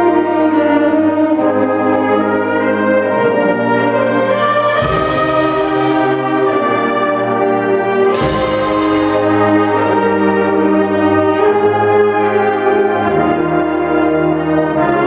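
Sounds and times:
wind band holding chords: 0:00.0 - 0:15.0
percussion crash: 0:04.7 - 0:06.7, 0:08.1 - 0:10.5.

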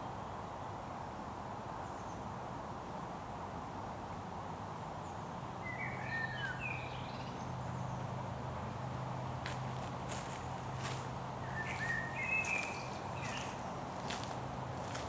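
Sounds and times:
woodland background noise: 0:00.0 - 0:15.0
songbird chirping: 0:05.1 - 0:08.2, 0:09.1 - 0:15.0.

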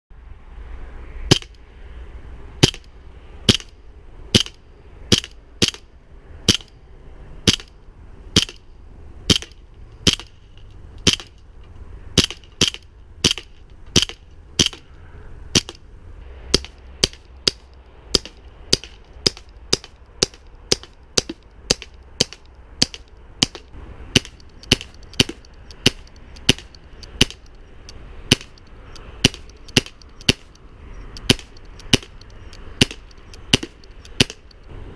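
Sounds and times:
bb pistol shots cracking: 0:02.6 - 0:02.9, 0:03.5 - 0:03.7, 0:04.3 - 0:05.9, 0:06.5 - 0:06.7, 0:07.4 - 0:08.6, 0:09.3 - 0:10.4, 0:11.0 - 0:11.4, 0:12.2 - 0:14.8, 0:15.5 - 0:15.8, 0:16.5 - 0:27.4, 0:28.3 - 0:28.6, 0:29.2 - 0:30.5, 0:31.2 - 0:32.2, 0:32.8 - 0:34.5.

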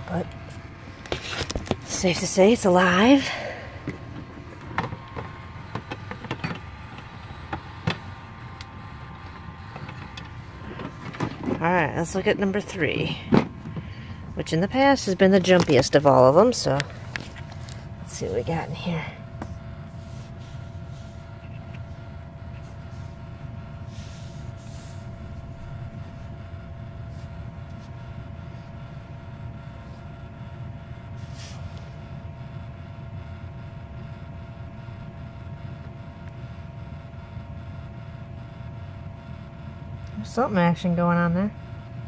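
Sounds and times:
electric motor humming and whining: 0:00.0 - 0:42.0
soft rustles: 0:19.4 - 0:21.9.

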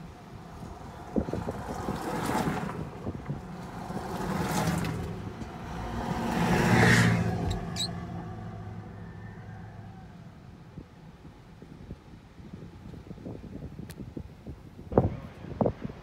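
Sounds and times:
cars driving past on dirt road: 0:00.0 - 0:11.0.

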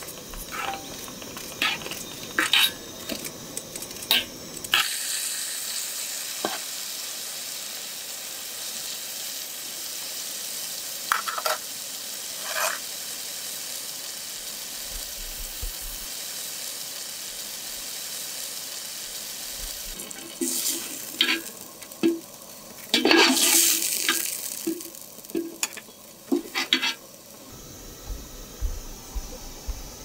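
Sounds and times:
mushrooms sizzling in oil: 0:00.0 - 0:30.0
spoon scraping metal pan: 0:01.6 - 0:02.8, 0:12.4 - 0:12.8, 0:25.4 - 0:27.0.

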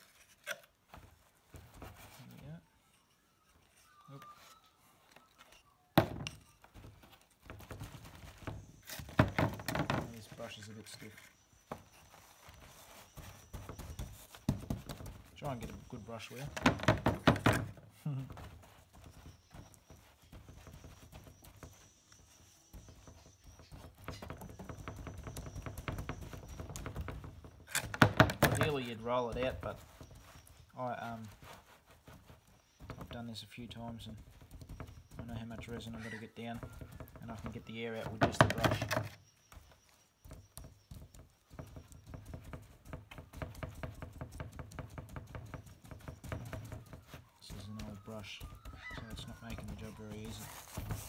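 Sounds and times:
paint brush dabbing wet resin: 0:10.0 - 0:16.6, 0:28.6 - 0:38.6, 0:39.2 - 0:51.0.

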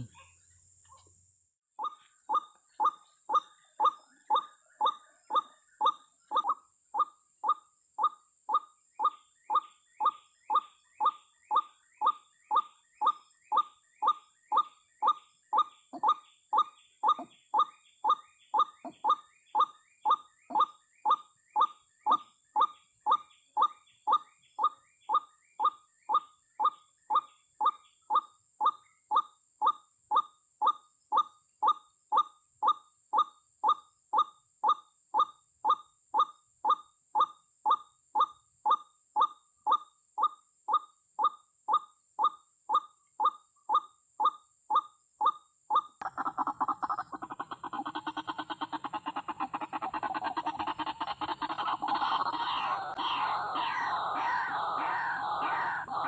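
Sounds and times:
waterhen call through speaker: 0:46.0 - 0:56.0.

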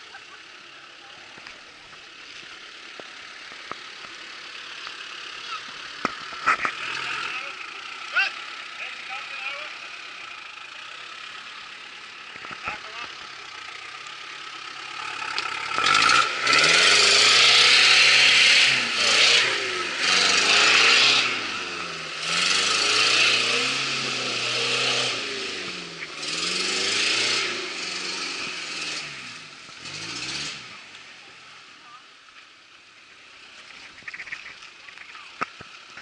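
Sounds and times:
engine revving: 0:02.9 - 0:31.7.

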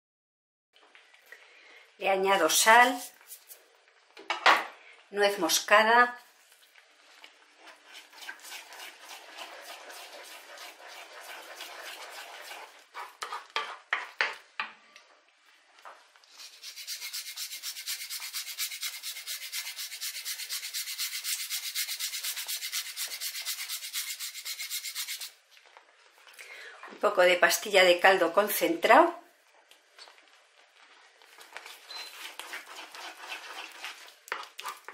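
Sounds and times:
wooden spoon stirring sauce in pan: 0:06.2 - 0:14.7, 0:29.4 - 0:34.9
nutmeg rasped on metal grater: 0:07.9 - 0:13.5, 0:16.4 - 0:25.3, 0:31.7 - 0:34.9.

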